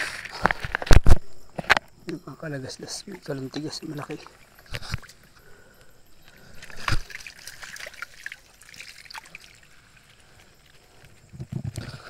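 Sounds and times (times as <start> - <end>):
water trickling and sloshing: 2.4 - 12.0
small splashes and clicks: 3.1 - 5.4, 6.2 - 12.0.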